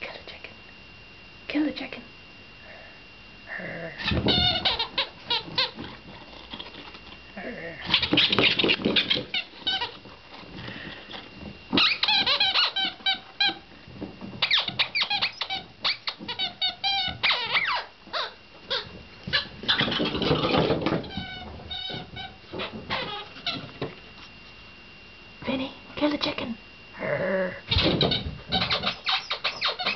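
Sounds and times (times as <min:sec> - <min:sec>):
squeaky toy squealing: 0:27.8 - 0:29.9.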